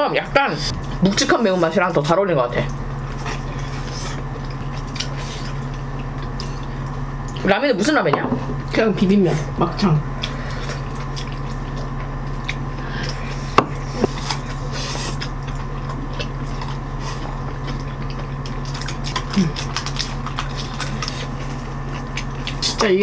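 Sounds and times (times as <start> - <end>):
steady low hum: 0.0 - 23.0
chewing and slurping: 2.6 - 7.5, 10.2 - 22.9.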